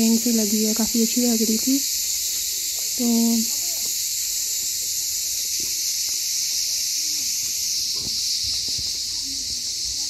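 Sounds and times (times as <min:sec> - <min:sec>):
cicadas chorus: 0:00.0 - 0:10.0
footsteps on stone paving: 0:02.1 - 0:10.0.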